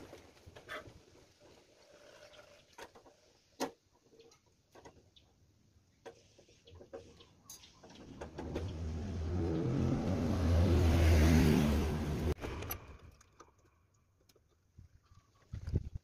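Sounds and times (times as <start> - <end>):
vehicle engine passing by: 8.1 - 12.4.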